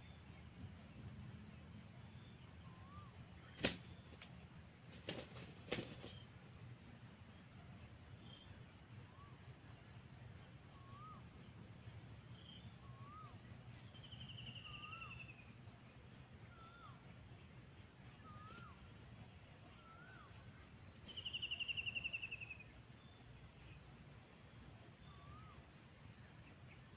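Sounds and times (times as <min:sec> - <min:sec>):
insects buzzing: 0:00.0 - 0:26.9.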